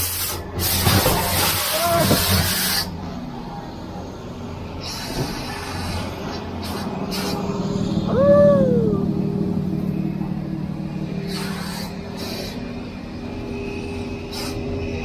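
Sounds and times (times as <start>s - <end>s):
vehicle engine humming: 0.0s - 15.0s
rising and falling tone: 7.6s - 11.2s.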